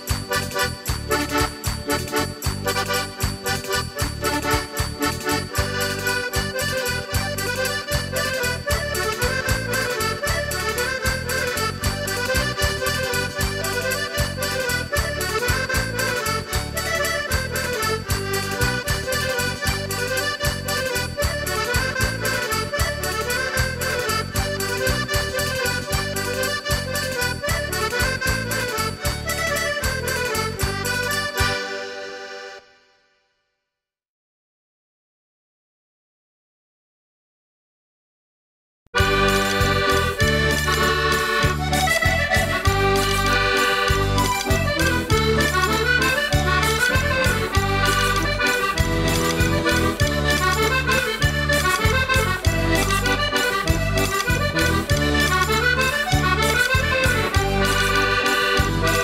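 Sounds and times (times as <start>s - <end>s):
folk music with accordion: 0.0s - 33.1s, 39.0s - 59.0s
steady bass beat: 39.0s - 59.0s.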